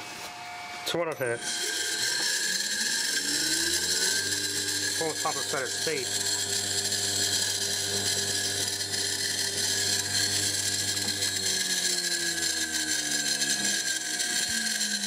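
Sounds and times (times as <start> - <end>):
motor spinning with bearing whine: 0.0 - 15.0.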